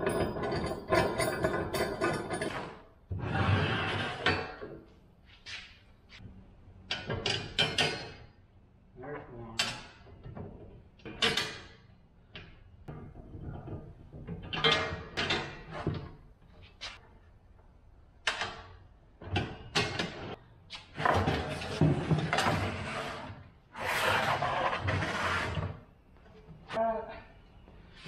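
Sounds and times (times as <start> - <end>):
metal knocks and clanks: 0.0 - 2.9
metal frame scraping on wood: 0.0 - 4.6, 20.0 - 25.9.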